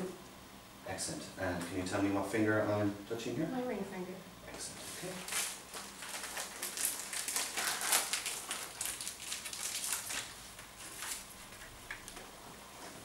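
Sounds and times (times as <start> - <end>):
rustling and crinkling: 4.8 - 13.0.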